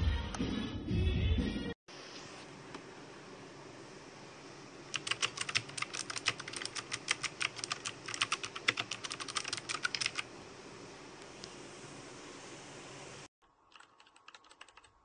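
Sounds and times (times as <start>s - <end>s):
mechanical keyboard typing: 4.9s - 10.3s, 13.7s - 15.0s.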